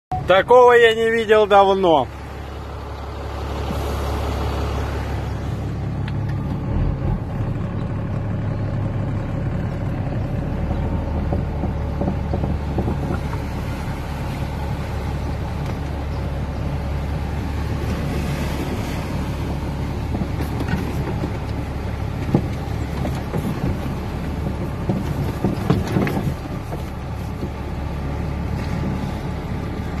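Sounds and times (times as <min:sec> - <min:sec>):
vehicle engine droning: 0:00.1 - 0:30.0
water washing against vehicle: 0:00.2 - 0:07.4, 0:08.2 - 0:30.0.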